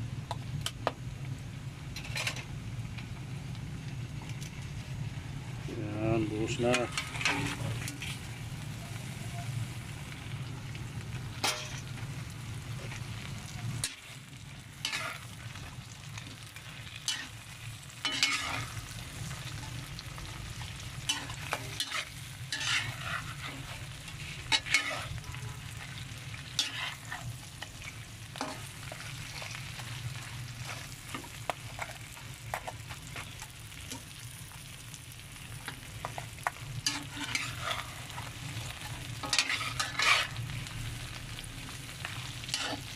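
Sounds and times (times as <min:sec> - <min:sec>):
shrimp sizzling in a pot: 0:00.0 - 0:42.9
metal spoon scraping a pot: 0:14.8 - 0:15.2, 0:18.0 - 0:18.7, 0:21.1 - 0:23.7, 0:24.5 - 0:25.2, 0:26.6 - 0:27.3, 0:36.8 - 0:38.0, 0:39.2 - 0:40.4.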